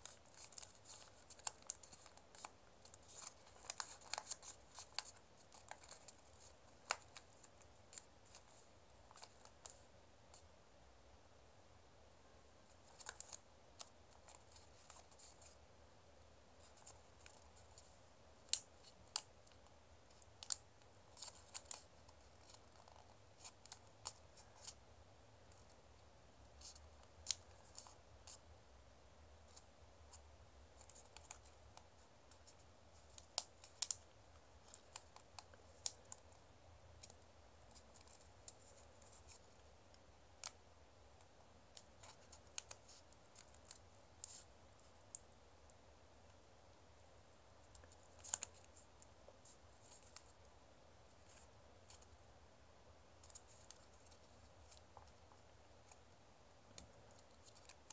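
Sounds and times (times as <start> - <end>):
paper folding and creasing: 0.0 - 10.4, 16.6 - 24.8.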